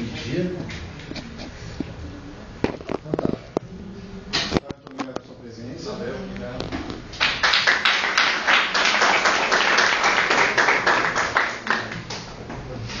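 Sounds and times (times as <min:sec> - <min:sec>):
crowd applauding: 0:07.2 - 0:12.0.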